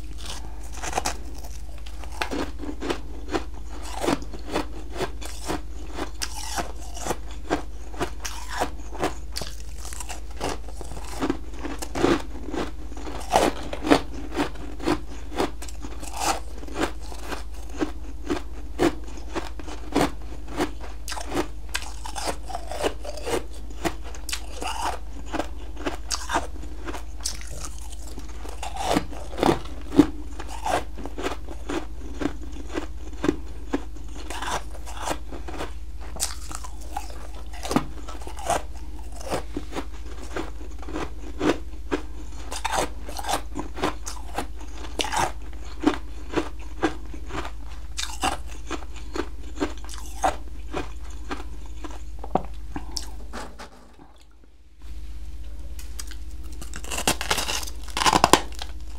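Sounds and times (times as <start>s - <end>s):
person crunching ice: 0.0s - 41.6s, 42.4s - 52.0s, 56.0s - 58.9s.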